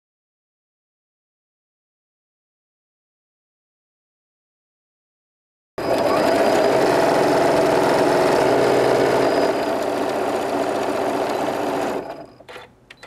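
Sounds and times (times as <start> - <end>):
sewing machine running: 5.8 - 12.7.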